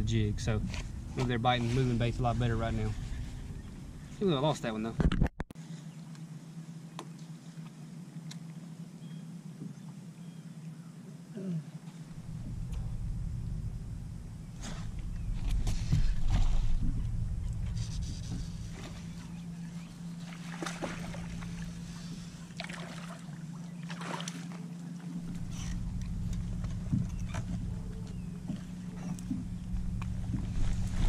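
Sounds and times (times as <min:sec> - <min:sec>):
trolling motor humming: 0:00.0 - 0:05.0, 0:05.6 - 0:31.0
wind rumble on microphone: 0:12.1 - 0:20.2, 0:25.2 - 0:31.0
water splashes: 0:14.6 - 0:31.0.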